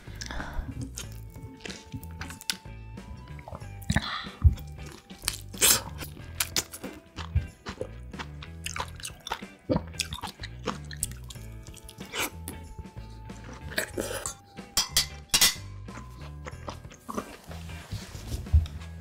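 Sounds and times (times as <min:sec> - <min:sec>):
soft background music: 0:00.0 - 0:19.0
wet chewing and biting: 0:00.2 - 0:14.4, 0:15.9 - 0:17.5
mouth smacks: 0:08.7 - 0:12.6
metal fork clinking on plate: 0:14.8 - 0:15.6.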